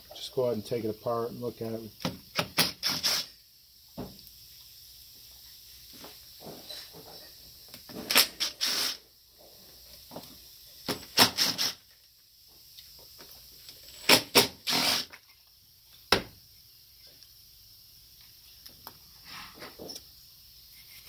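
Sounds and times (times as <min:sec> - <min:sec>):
cordless drill bursts: 0:02.5 - 0:03.4, 0:08.1 - 0:09.0, 0:11.2 - 0:11.8, 0:14.0 - 0:15.1.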